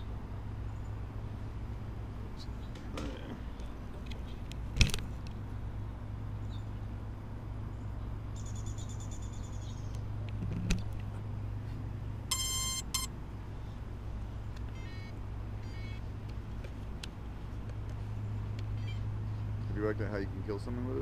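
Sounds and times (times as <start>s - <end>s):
steady low hum: 0.0s - 21.0s
electronic beeps: 12.3s - 13.1s
high buzzy tone: 12.3s - 13.1s.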